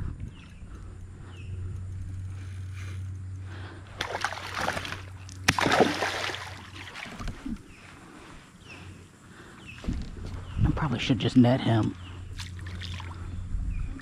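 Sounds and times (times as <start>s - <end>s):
steady low hum: 0.0s - 14.0s
fish slapping the water: 3.9s - 7.5s, 12.3s - 13.2s
fish splashing in water: 3.9s - 7.5s, 12.3s - 13.2s.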